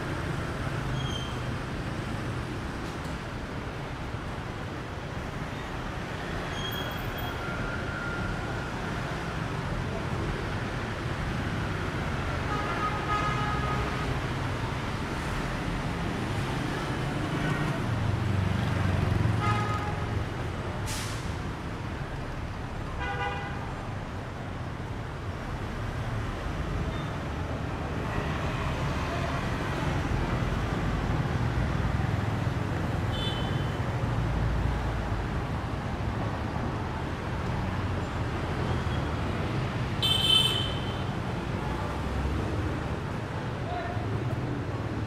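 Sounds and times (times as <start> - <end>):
scooters and cars passing: 7.2 - 20.8, 23.8 - 45.0.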